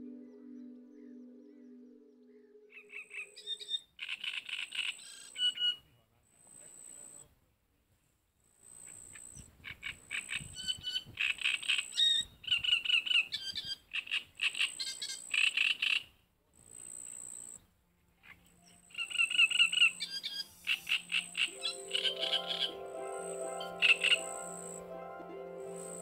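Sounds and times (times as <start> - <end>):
frogs calling: 18.2 - 24.9.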